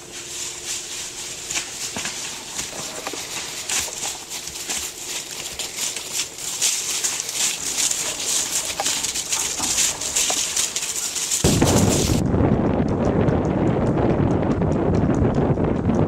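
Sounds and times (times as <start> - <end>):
hooves crunching through dry leaves: 0.0 - 12.2
wind rumble on microphone: 7.2 - 16.0.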